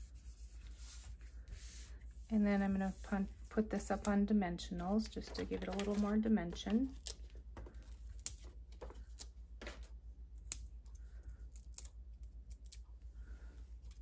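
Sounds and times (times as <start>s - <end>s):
paper rustling: 5.0s - 9.9s.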